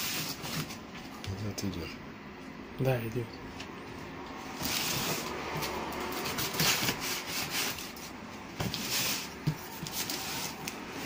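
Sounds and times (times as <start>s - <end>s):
knife cutting packing tape: 4.6s - 8.1s
cardboard rubbing and knocking: 6.0s - 10.6s.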